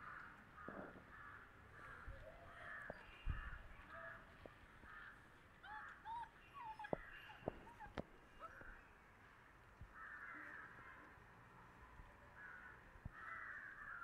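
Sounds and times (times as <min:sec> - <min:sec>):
bird calls: 0:04.9 - 0:09.0.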